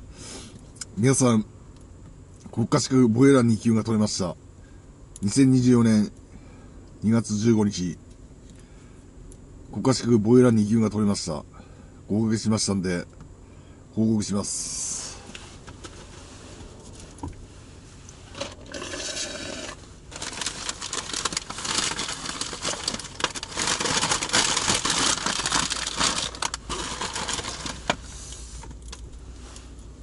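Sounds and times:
food packaging crinkling: 18.3 - 28.1.

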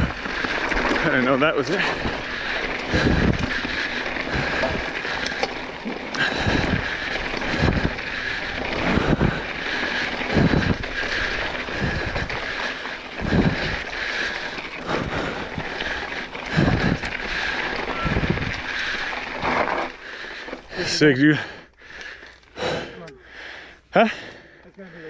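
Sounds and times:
wind buffeting microphone: 0.0 - 19.9
bike tyres on rocky dirt trail: 0.0 - 25.0.

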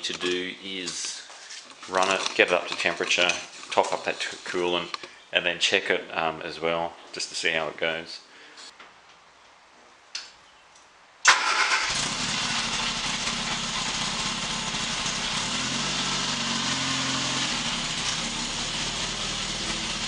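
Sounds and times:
car engine starting and running: 11.3 - 20.0.

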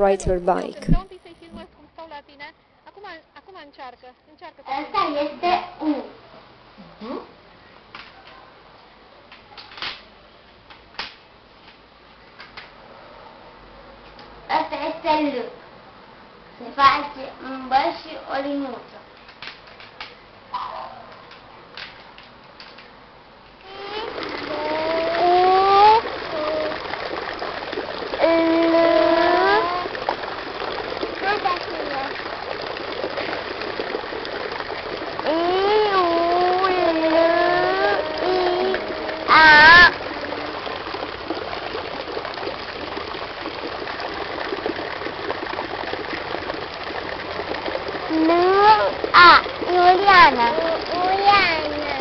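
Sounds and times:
water splashing: 23.6 - 52.0
voice sliding up in pitch: 35.3 - 40.6.

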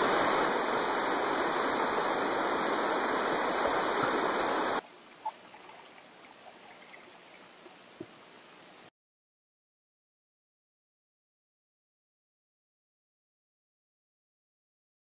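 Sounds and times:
creek water rushing: 0.0 - 8.0
faint hiss: 0.0 - 8.9.

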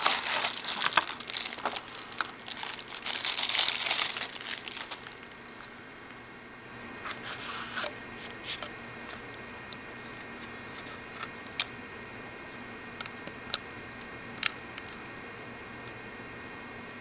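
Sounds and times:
paper leaflet rustling: 0.0 - 5.7.

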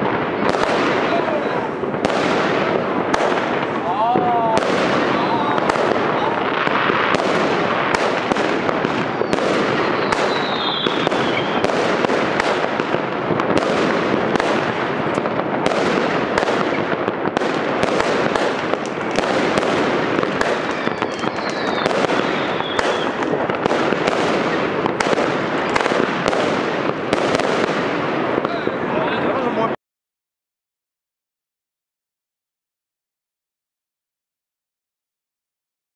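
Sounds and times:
fireworks bangs and crackles: 0.0 - 29.8
firework whistle: 9.0 - 12.6, 20.2 - 23.4.

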